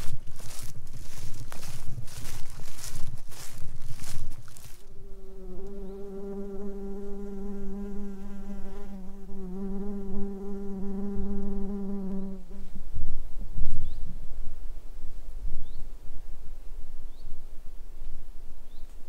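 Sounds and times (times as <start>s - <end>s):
footsteps on forest floor: 0.0s - 5.0s
flying insect buzzing: 4.8s - 12.8s.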